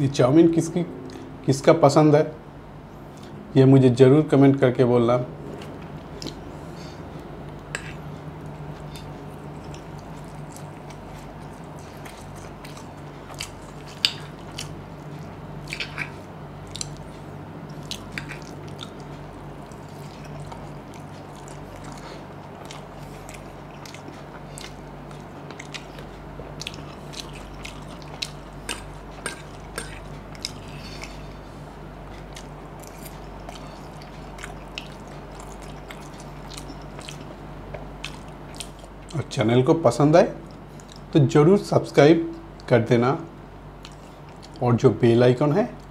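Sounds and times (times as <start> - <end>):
faint low hum: 0.0 - 45.9
chewing noodles with wet smacks: 7.8 - 39.2, 43.8 - 44.6.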